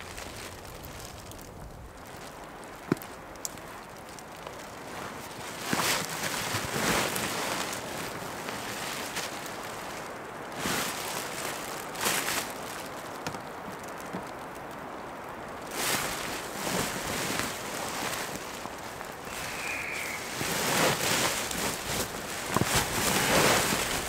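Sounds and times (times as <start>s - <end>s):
steady background hiss: 0.0s - 24.0s
sleeping bag nylon rustling: 3.0s - 13.2s, 15.7s - 24.0s.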